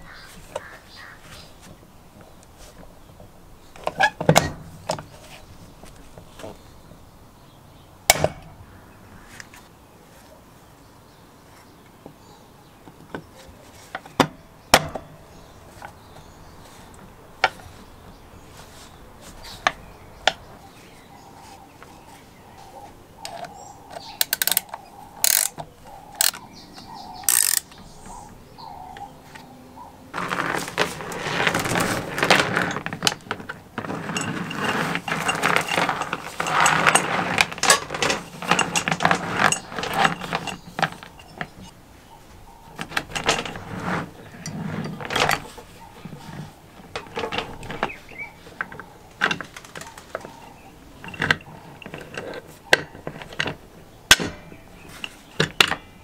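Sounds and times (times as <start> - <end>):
hoist mechanism clicking: 23.2 - 26.5, 27.1 - 28.2
metal clicks and taps: 23.2 - 27.9
chain rattling through hoist: 24.2 - 25.6, 27.2 - 27.8, 33.8 - 41.7.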